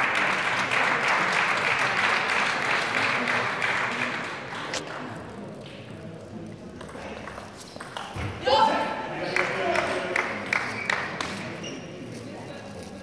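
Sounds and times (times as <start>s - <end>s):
spectators applauding: 0.0s - 5.0s, 9.3s - 11.4s.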